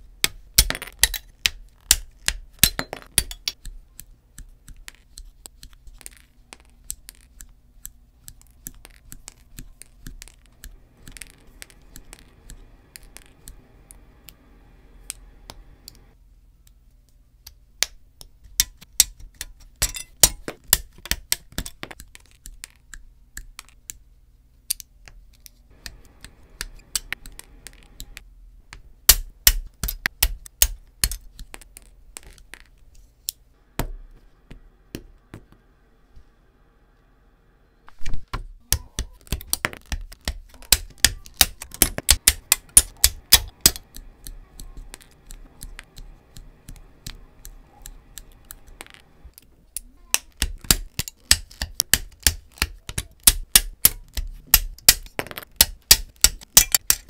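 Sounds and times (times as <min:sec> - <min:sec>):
cutters snipping plastic: 0:46.7 - 0:57.0.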